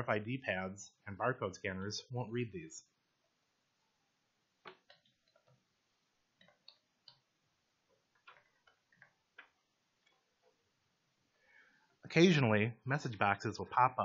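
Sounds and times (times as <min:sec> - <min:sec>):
keyboard keystrokes typing: 0:04.7 - 0:05.6.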